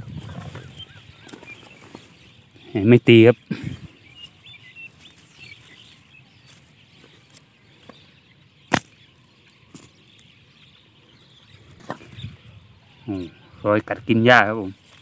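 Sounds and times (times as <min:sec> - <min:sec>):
grass rustling: 0:03.1 - 0:08.1, 0:14.5 - 0:15.0
footsteps through tall grass: 0:04.1 - 0:08.1, 0:14.7 - 0:15.0.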